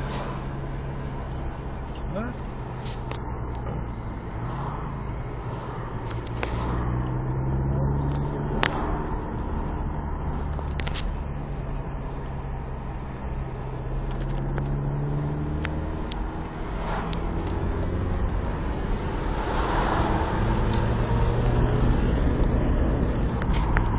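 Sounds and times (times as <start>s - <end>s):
car engine: 0.0s - 23.9s
road noise inside car: 0.0s - 23.9s.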